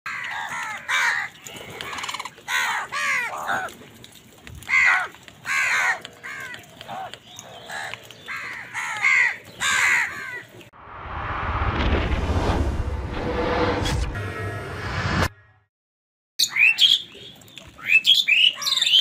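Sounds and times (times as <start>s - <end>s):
crows cawing: 0.1s - 3.8s, 4.6s - 10.5s.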